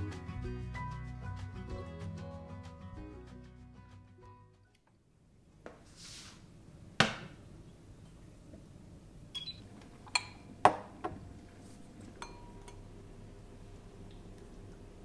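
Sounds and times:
kitchenware clinking on countertop: 12.2 - 12.8.

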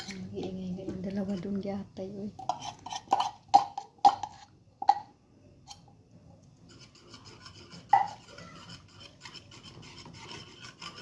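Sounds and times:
utensil scraping saucepan: 0.0 - 1.6, 2.4 - 5.1, 6.6 - 11.0.

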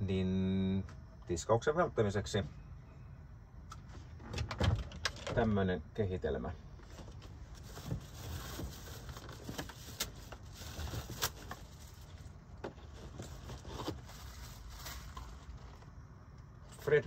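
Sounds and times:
low steady hum: 0.0 - 17.0
things moved in a cupboard: 6.8 - 15.9.

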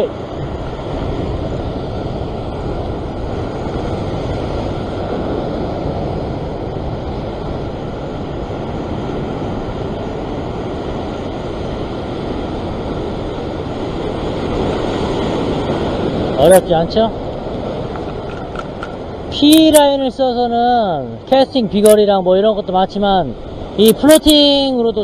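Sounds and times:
wind noise: 0.0 - 20.1
surf breaking on rocks: 12.2 - 19.9.

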